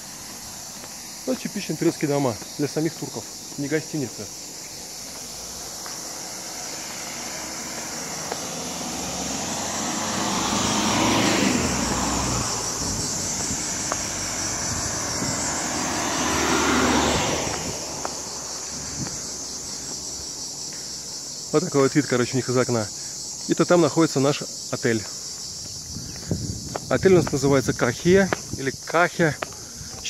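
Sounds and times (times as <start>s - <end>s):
cars driving past: 0.0s - 21.2s
insects buzzing: 0.0s - 30.0s.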